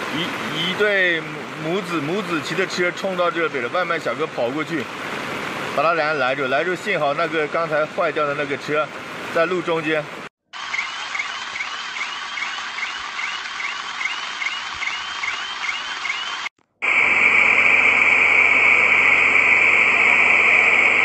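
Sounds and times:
rushing floodwater: 0.0s - 10.3s.

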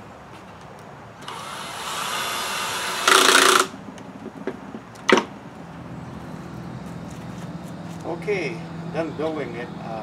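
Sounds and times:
cordless drill driving screw: 1.2s - 3.7s.

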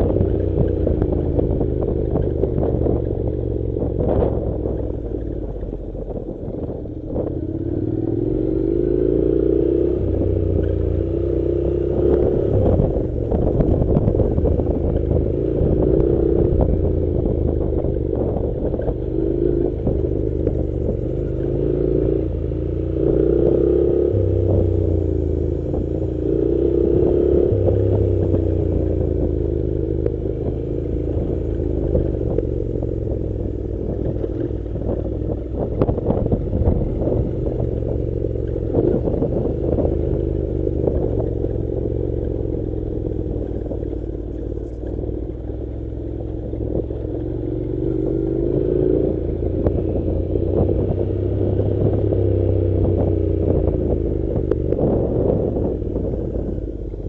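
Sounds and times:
knocks and clatter from rough road: 0.0s - 7.4s, 12.0s - 21.6s, 25.6s - 45.6s
motorcycle engine running: 0.0s - 57.0s.

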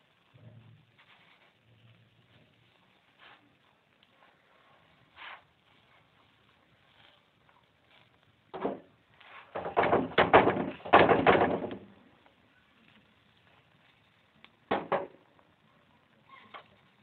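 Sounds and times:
spatula scraping a pan: 4.3s - 6.1s.

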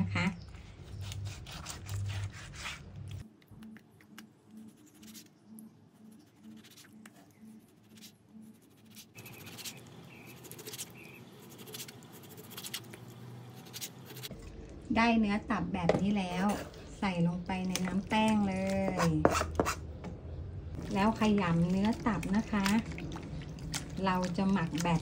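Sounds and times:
knife slicing liver: 0.9s - 3.2s.

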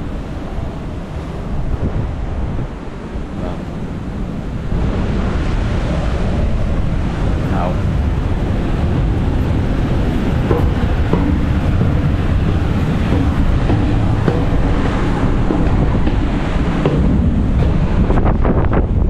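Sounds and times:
wind buffeting microphone: 0.0s - 19.0s
footsteps on steel stairs: 8.4s - 19.0s.

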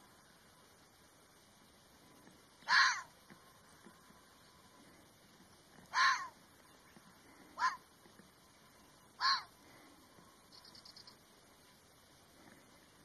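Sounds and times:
fox barking: 2.6s - 3.1s, 5.9s - 6.4s, 7.5s - 7.8s, 9.2s - 9.5s.

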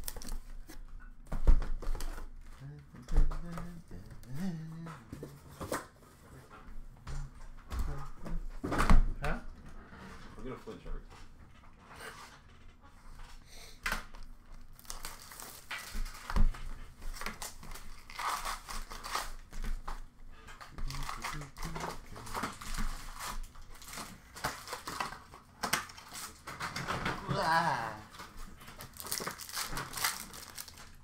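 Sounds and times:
plastic wrap crinkling and tearing: 0.0s - 0.8s, 14.2s - 19.8s, 20.8s - 31.0s.

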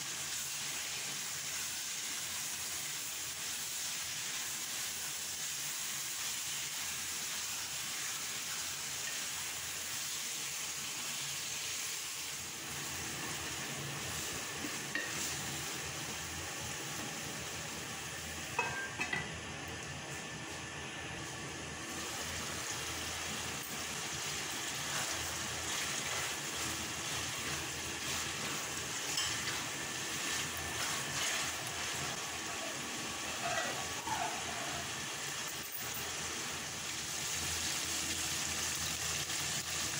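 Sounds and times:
meat sizzling in oil: 0.0s - 39.9s
metal lid clinking on pot: 18.6s - 19.3s
spatula stirring in pot: 23.7s - 32.2s.

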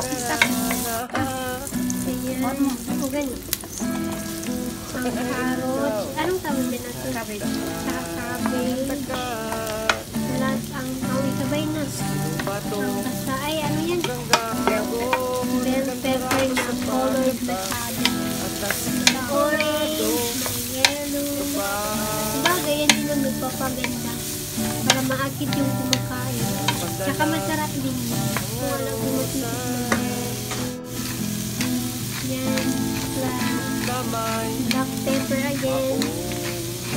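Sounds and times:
vegetables sizzling in a wok: 0.0s - 36.9s
background music: 3.9s - 36.9s
spatula scraping a wok: 12.0s - 36.9s.

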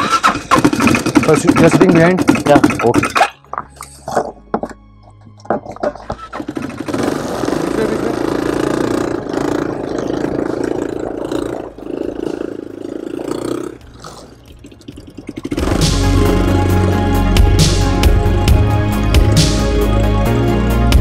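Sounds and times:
quad bike engine under throttle: 0.0s - 3.2s, 6.1s - 18.2s.

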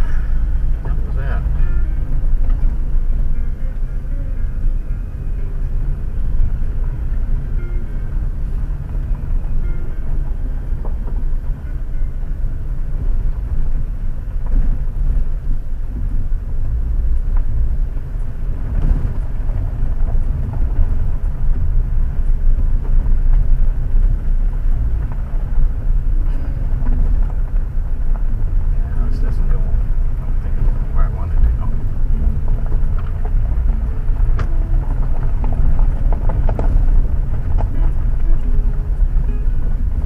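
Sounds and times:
road and engine rumble: 0.0s - 40.0s
tyres ticking on gravel: 16.6s - 40.0s.

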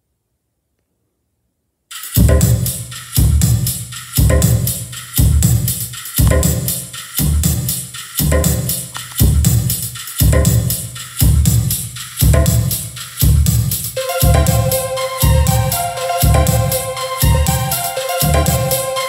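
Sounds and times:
electronic music with drum beat: 1.9s - 19.0s
heavy bass drum hits: 2.2s - 7.6s, 8.2s - 17.7s.

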